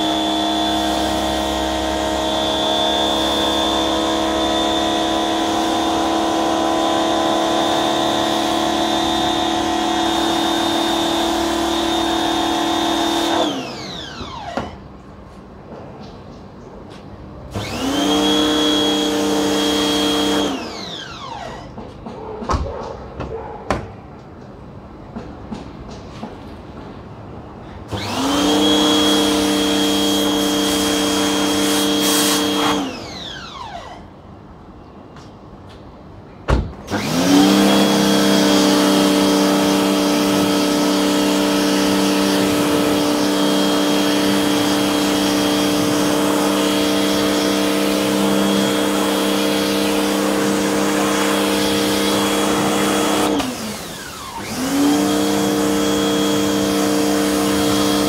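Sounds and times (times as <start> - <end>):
pressure washer motor humming: 0.0 - 14.5, 17.5 - 21.2, 27.9 - 33.5, 36.9 - 58.0.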